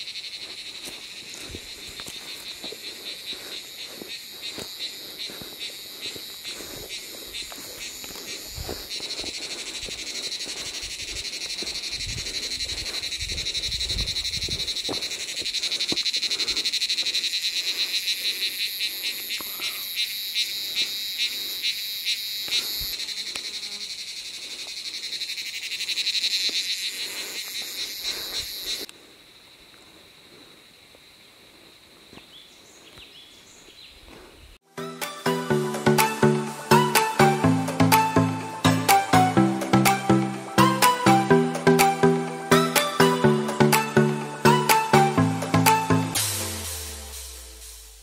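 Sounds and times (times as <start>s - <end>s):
insects buzzing: 0.0s - 48.0s.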